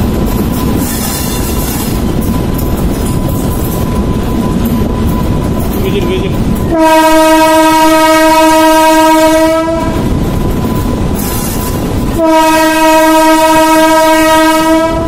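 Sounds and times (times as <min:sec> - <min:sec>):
train running rumble: 0:00.0 - 0:15.0
train horn blasts: 0:06.7 - 0:10.1, 0:12.1 - 0:15.0.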